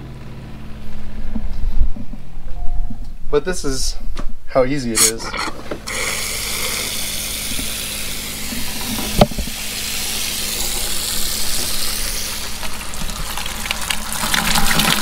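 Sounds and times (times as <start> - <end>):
tap water running into sink: 10.6 - 15.0.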